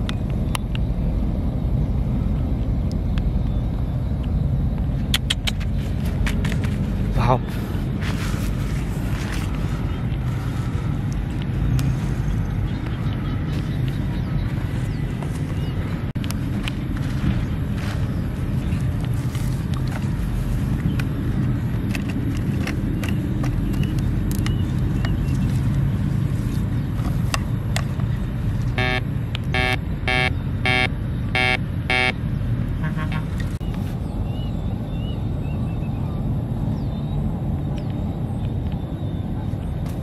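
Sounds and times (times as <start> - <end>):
steady low rumble: 0.0 - 40.0
metal detector buzzy beeps: 28.8 - 32.2.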